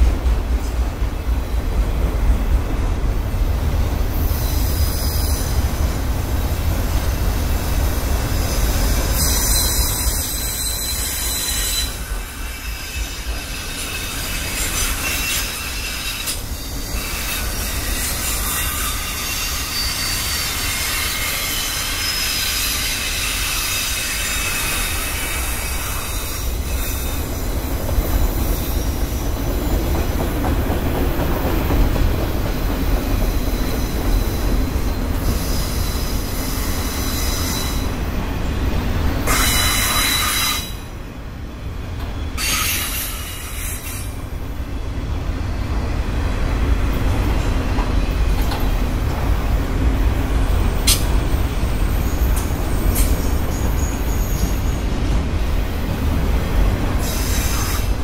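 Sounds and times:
train wheels rumbling on rail: 0.0 - 58.0
high-pitched wheel squeal: 8.4 - 13.9.

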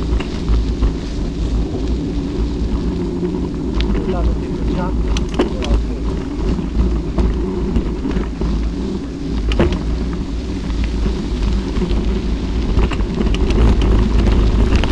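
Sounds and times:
vehicle rumbling on gravel road: 0.0 - 14.9.

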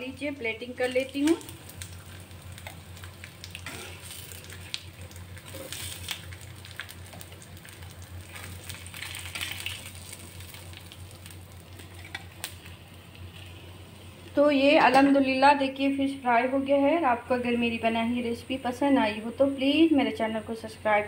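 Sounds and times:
oil sizzling with fish frying: 0.0 - 15.2
steady low hum: 0.0 - 21.0
crackles and pops: 0.8 - 15.2.

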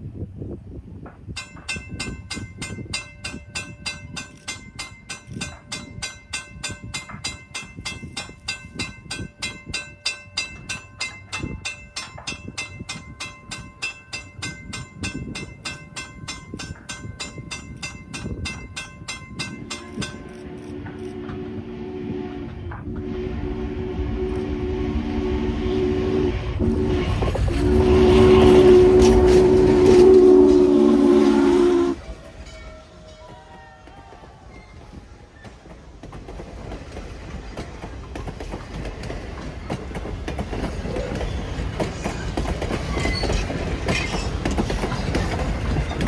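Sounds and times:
train rumble: 0.0 - 46.0
steam locomotive whistle: 19.7 - 35.0.

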